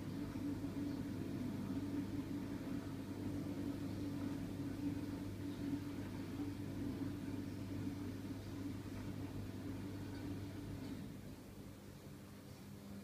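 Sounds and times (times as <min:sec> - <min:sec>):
laptop cooling fan humming: 0:00.0 - 0:13.0.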